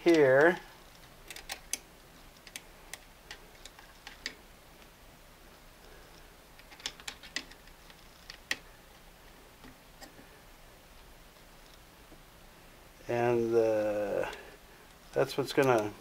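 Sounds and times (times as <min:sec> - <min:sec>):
sewing machine parts clicking: 0:01.2 - 0:01.8.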